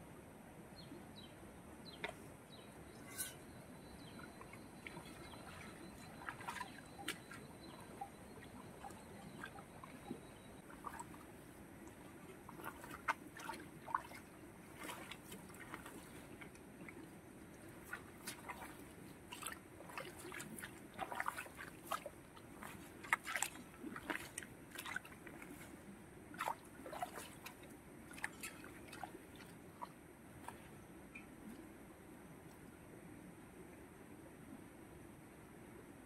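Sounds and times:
hands squelching in wet mud: 4.1 - 30.8.

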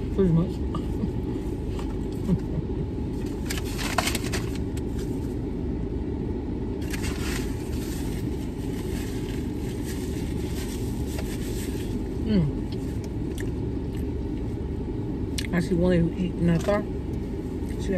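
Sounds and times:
paper bag rustling: 3.2 - 5.4, 6.8 - 12.2.

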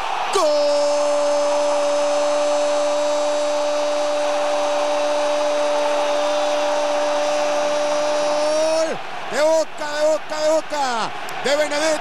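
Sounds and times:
stadium crowd noise: 0.0 - 12.0
commentator's long goal cry: 0.3 - 9.0.

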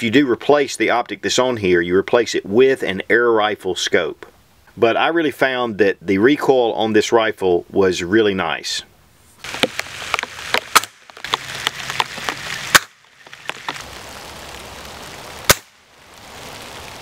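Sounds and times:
air rifle shots: 15.5 - 15.8.

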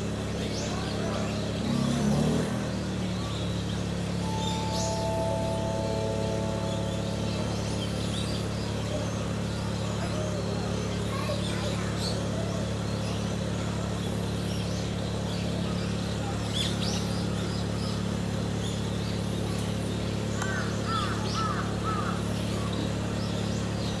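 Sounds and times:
low background hum: 3.2 - 15.6.

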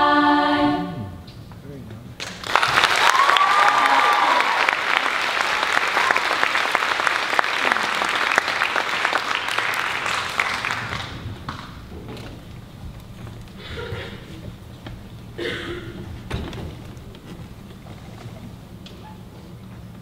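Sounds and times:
audience clapping: 2.2 - 11.9.

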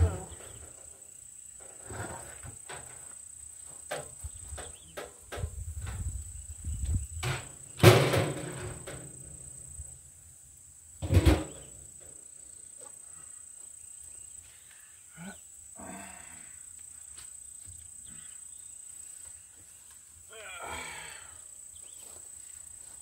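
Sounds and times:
metal trash can knocks and scrapes: 7.2 - 9.2, 11.0 - 11.8.

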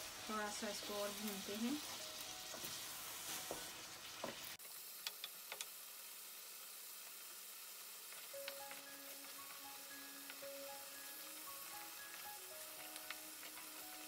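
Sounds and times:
soft music with held notes: 0.0 - 3.8, 8.3 - 14.0
chicken sizzling in oil: 0.0 - 14.0.

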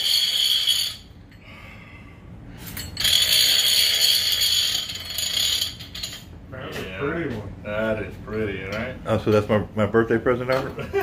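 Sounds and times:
fishing reel ratcheting: 3.0 - 6.2.

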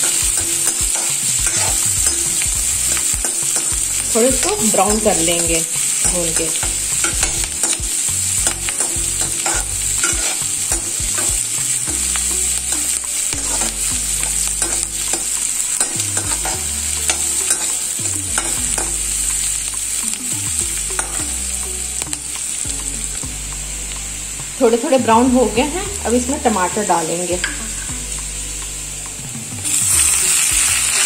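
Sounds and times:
metal spatula scraping a pan: 0.0 - 20.1, 20.9 - 23.1
onions sizzling in a pan: 0.0 - 31.0.

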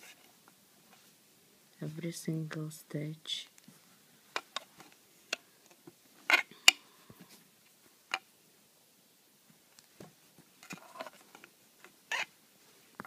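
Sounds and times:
soft yarn rustling: 0.0 - 8.0.

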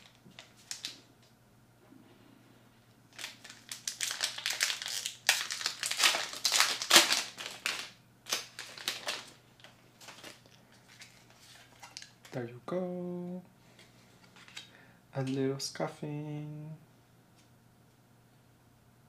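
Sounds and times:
foil wrapper crinkling: 0.0 - 1.0, 3.1 - 12.4.

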